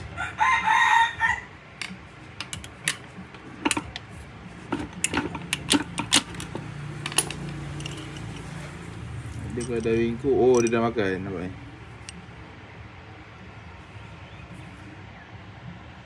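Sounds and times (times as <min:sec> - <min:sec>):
rooster crowing: 0:00.0 - 0:01.6
metallic clicks of engine parts: 0:01.8 - 0:11.2, 0:12.0 - 0:12.2.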